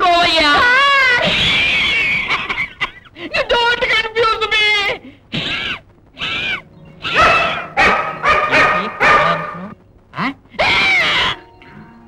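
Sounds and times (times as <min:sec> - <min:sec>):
dogs barking: 0:07.0 - 0:09.8.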